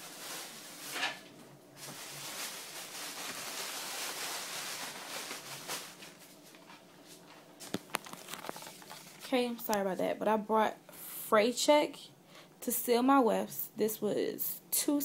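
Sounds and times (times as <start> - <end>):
rustling of items: 0.0 - 9.9.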